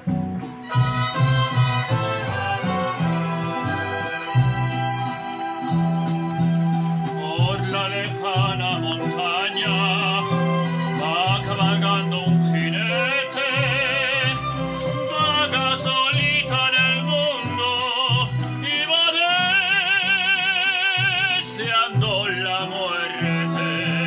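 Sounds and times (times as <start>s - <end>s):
recorded accompaniment with bass line: 0.0s - 24.0s
man singing with vibrato: 5.6s - 24.0s.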